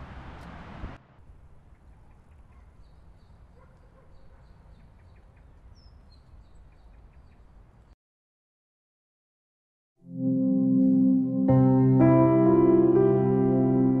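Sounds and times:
small bird chirps and calls: 1.7s - 8.0s.

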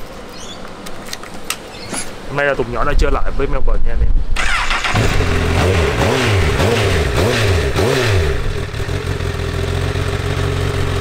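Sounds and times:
motorcycle engine revving and idling: 4.4s - 11.0s.

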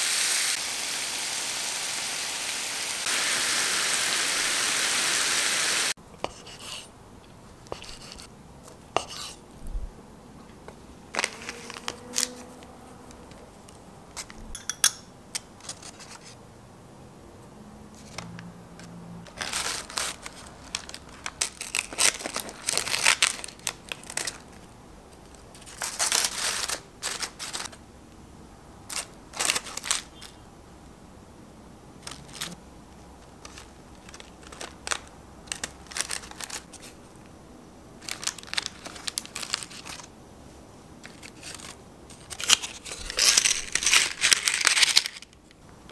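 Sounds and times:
frying pan sizzling: 0.0s - 6.0s
paper and packaging crinkling: 11.1s - 12.5s, 19.3s - 27.8s, 28.9s - 30.4s, 32.0s - 32.6s, 33.3s - 37.1s, 38.0s - 40.1s, 41.0s - 45.5s.

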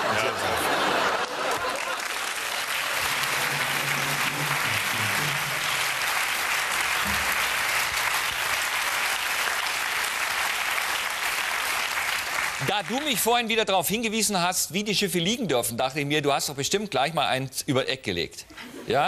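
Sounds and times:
studio audience applauding: 0.0s - 13.6s
faint low notes: 3.0s - 6.2s.

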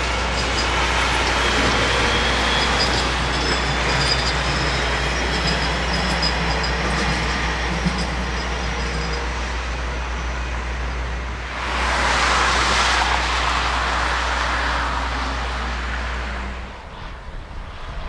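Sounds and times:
train rumble with wheel tones: 0.0s - 18.0s
truck tyre noise passing: 11.2s - 18.0s.

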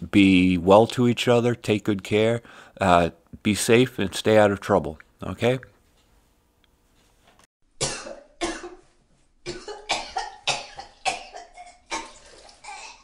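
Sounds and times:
person coughing harshly: 7.8s - 8.9s, 9.5s - 13.0s.

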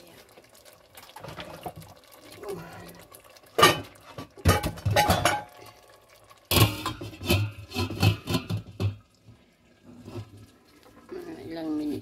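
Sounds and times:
glass lid rattling on metal pot: 3.6s - 5.6s, 6.5s - 9.0s.

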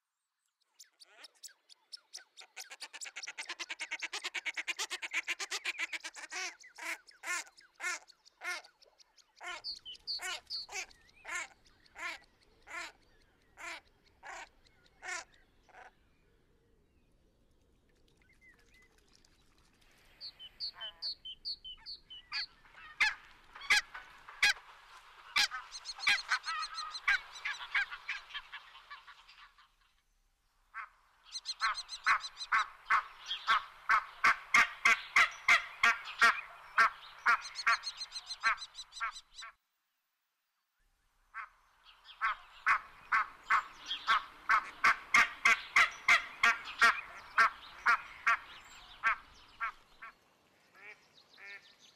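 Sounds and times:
geese honking: 42.2s - 49.8s.

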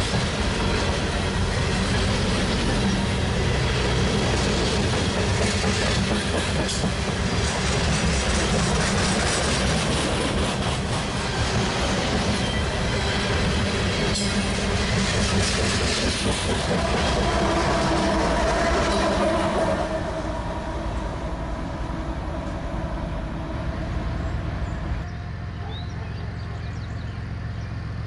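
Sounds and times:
train wheels rumbling and clicking: 0.0s - 21.0s
diesel locomotive engine: 0.0s - 28.0s.

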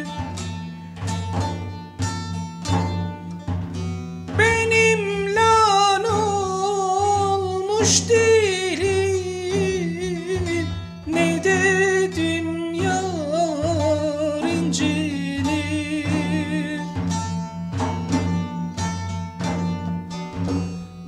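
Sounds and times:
man singing ornamented line: 0.0s - 0.4s, 4.3s - 17.2s
plucked lute: 0.0s - 21.0s.

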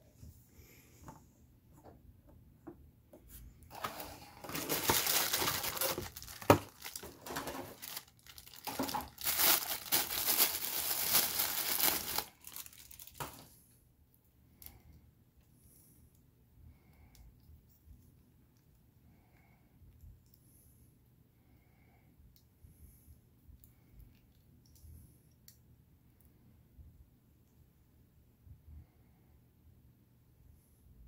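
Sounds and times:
tissue paper crinkling and tearing: 3.7s - 13.5s.

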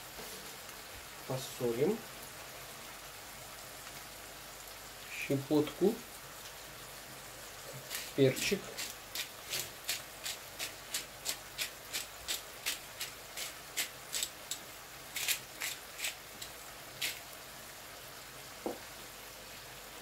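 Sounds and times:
pepper grinder grinding: 7.8s - 17.2s.

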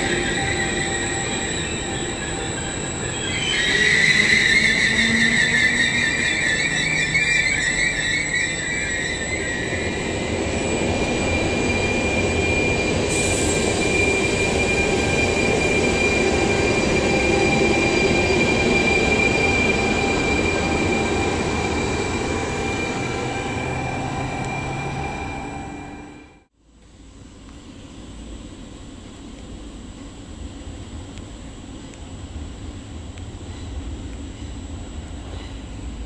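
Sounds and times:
train wheels rumbling on rails: 0.0s - 26.4s
thin high whine: 0.0s - 26.5s.

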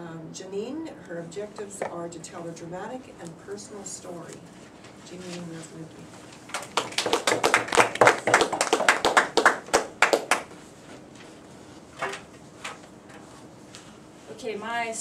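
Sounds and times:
people clapping: 6.5s - 10.6s.

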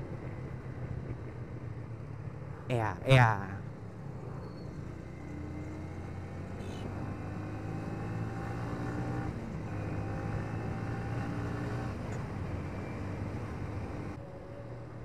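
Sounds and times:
motorcycle engine accelerating: 5.2s - 12.0s.

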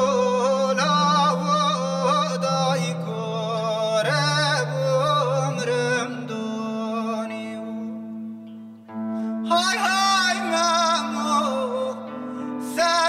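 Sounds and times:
man singing: 0.0s - 8.2s, 9.4s - 13.0s
guitar: 0.0s - 13.0s.

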